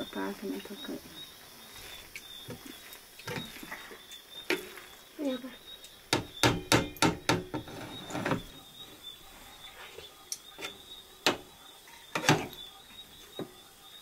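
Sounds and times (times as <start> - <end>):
kitchen utensils knocking and clinking: 6.2 - 8.5, 10.6 - 12.6.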